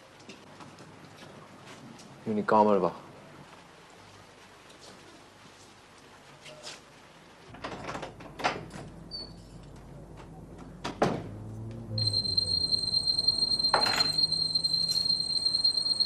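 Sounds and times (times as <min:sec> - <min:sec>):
steady high-pitched tone: 0:12.0 - 0:16.0.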